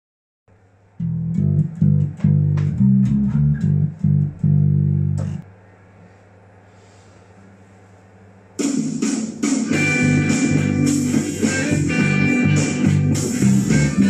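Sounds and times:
low steady hum: 0.5s - 8.6s
electric bass guitar riff: 1.0s - 5.4s, 9.7s - 14.0s.

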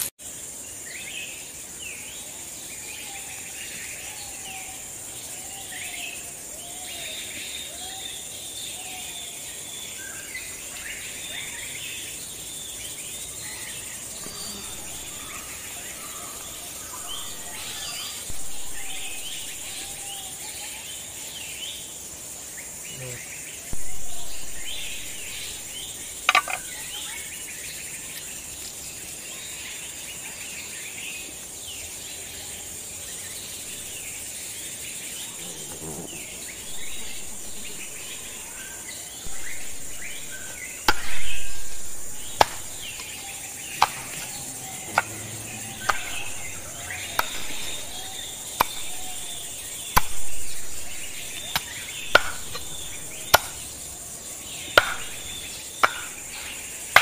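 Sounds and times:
high insect drone: 0.0s - 57.0s
bird chirps: 3.2s - 21.9s, 22.7s - 29.3s, 33.4s - 57.0s
cleaver chopping on wooden block: 26.3s - 26.8s, 39.3s - 53.6s, 54.7s - 57.0s.

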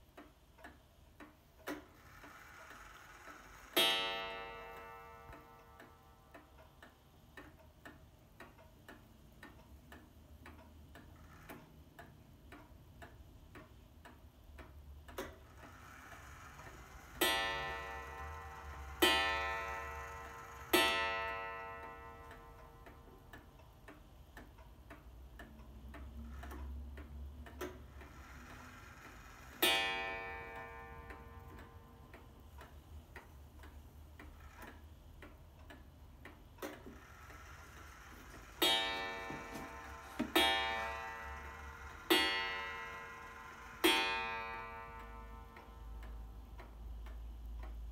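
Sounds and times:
clock ticking: 0.0s - 47.9s
clock striking a gong: 2.3s - 6.3s, 15.9s - 23.0s, 28.0s - 32.0s, 36.9s - 46.1s.

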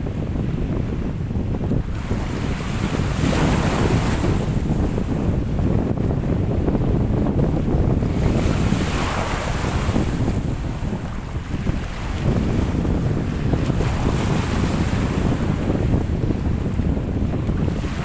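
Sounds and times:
wind buffeting microphone: 0.0s - 18.0s
sea waves splashing: 1.7s - 5.2s, 8.0s - 18.0s.

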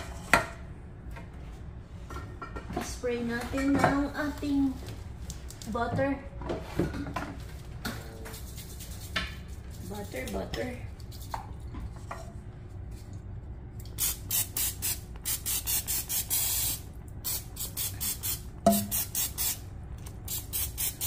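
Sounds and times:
aerosol spray hissing: 14.0s - 19.6s, 20.3s - 21.0s.

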